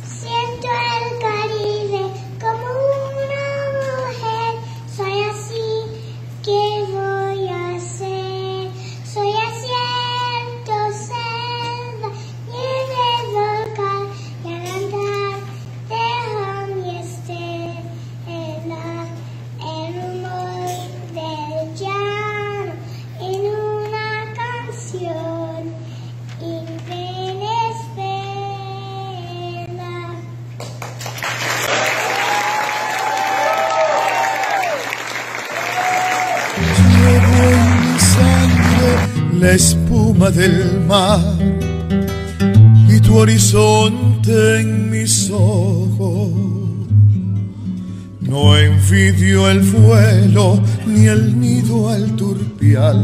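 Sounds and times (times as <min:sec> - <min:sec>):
girl singing into microphone: 0:00.0 - 0:30.5, 0:36.6 - 0:41.3, 0:42.8 - 0:46.6
sound system hum: 0:00.0 - 0:53.0
audience applause: 0:30.6 - 0:39.2.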